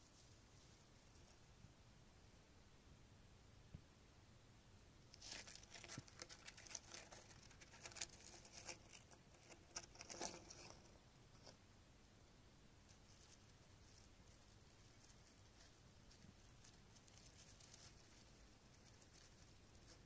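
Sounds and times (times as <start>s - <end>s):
dry grass rustling and crackling: 5.1s - 11.5s, 12.9s - 20.0s.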